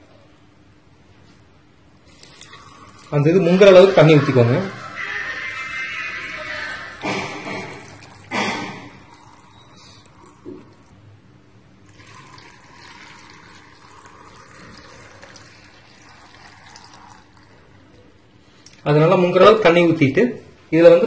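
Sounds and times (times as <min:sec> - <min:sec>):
water pouring into jar: 0:02.0 - 0:04.8, 0:06.9 - 0:11.0, 0:11.8 - 0:17.9.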